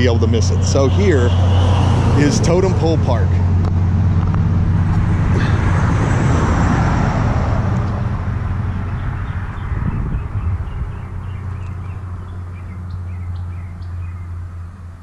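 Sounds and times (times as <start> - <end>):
car passing by: 0.4 - 11.8.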